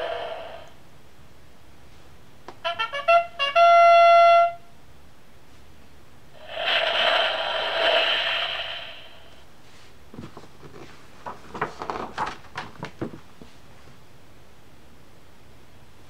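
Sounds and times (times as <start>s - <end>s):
hissing sound effect with tone: 0.0s - 0.8s, 6.4s - 9.5s
trumpet-like electronic fanfare: 2.6s - 4.7s.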